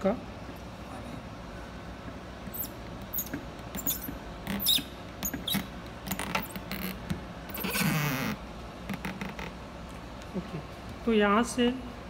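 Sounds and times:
small plastic clicks and squeaks: 2.5 - 7.9.

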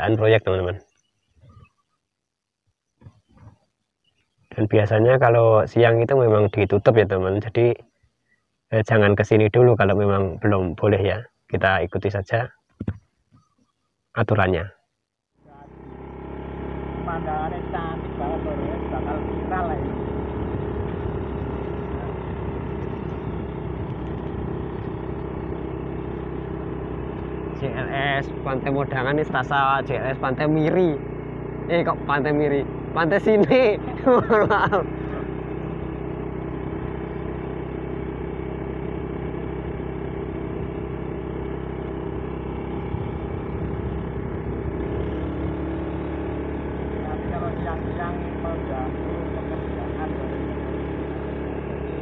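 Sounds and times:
motorcycle engine running: 2.8 - 8.2, 15.3 - 52.0
road noise: 15.3 - 52.0
rushing wind: 19.9 - 26.4, 42.5 - 45.8.

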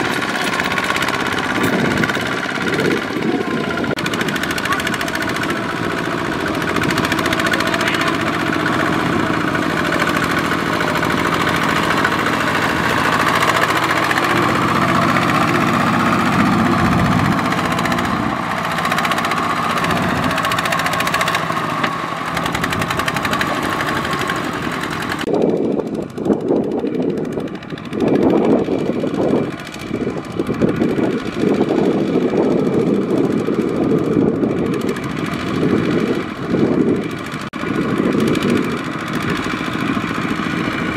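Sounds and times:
diesel tractor engines running: 0.0 - 40.9
uneven engine chugging: 0.0 - 40.9.

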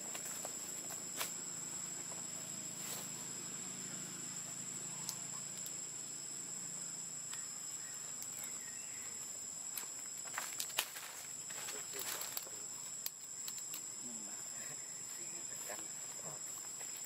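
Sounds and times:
insects calling high-pitched: 0.0 - 17.0
faint ticks and rustles: 8.1 - 14.0.

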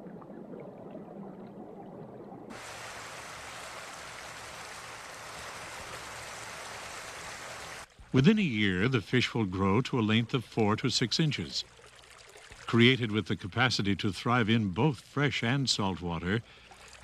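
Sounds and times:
stream rushing over rocks: 2.5 - 7.9.

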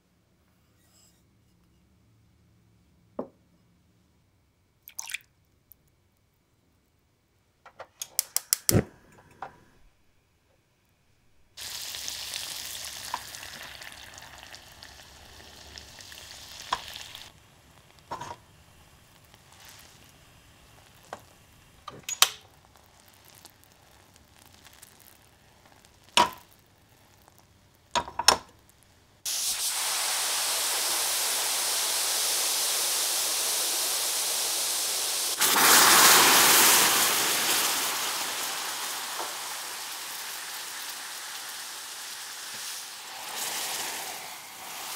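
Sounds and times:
water poured into hot pan: 4.9 - 5.2, 11.6 - 28.7, 29.3 - 44.9
caramel bubbling and hissing: 11.5 - 44.9
sizzling and spitting: 11.6 - 44.9.

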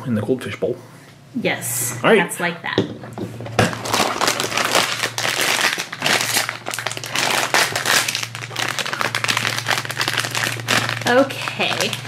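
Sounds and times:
plastic wrapper crinkling: 3.6 - 12.0.

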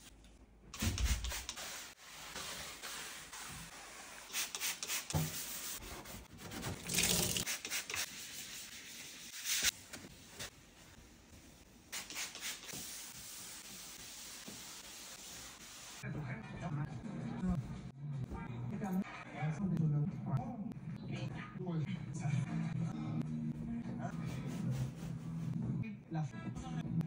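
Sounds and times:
spray bottle spritzes: 0.8 - 5.2, 12.0 - 13.1
paper towel wiping countertop: 0.8 - 16.0, 24.1 - 25.7
scrubbing and rubbing: 1.0 - 10.5, 24.3 - 25.6
tap water running: 6.5 - 8.0.

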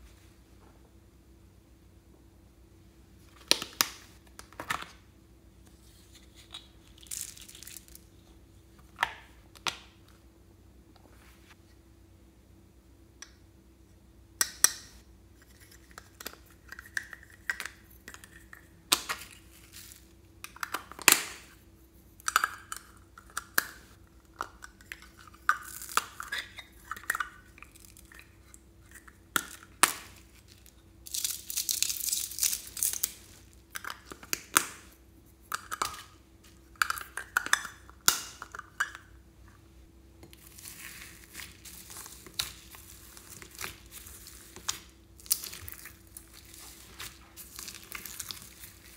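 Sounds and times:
foam beads crackling: 6.9 - 8.1, 30.1 - 33.7, 40.4 - 48.9.

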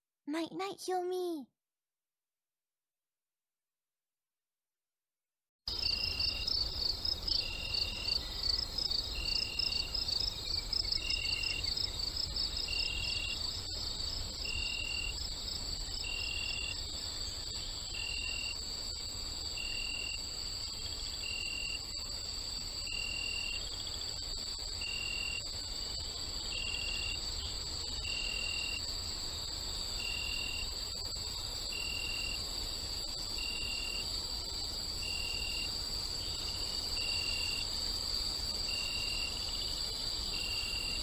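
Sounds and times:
insects chirping: 5.7 - 41.0.

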